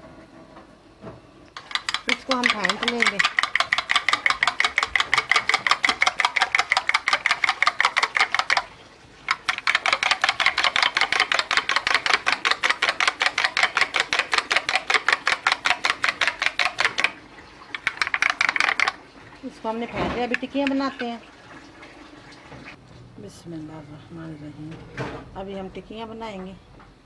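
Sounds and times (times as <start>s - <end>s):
spoon clicking against dish: 1.6s - 8.6s.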